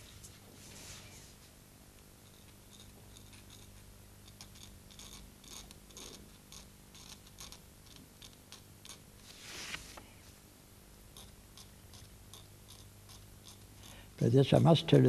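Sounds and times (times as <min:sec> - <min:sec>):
knife blade scraping print: 0:02.3 - 0:09.9, 0:11.2 - 0:14.0.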